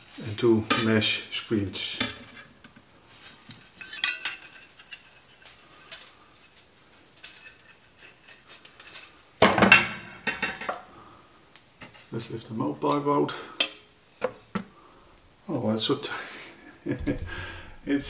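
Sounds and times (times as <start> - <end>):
metal plates clinking and scraping: 1.9 - 2.8, 3.5 - 6.6, 7.2 - 10.8.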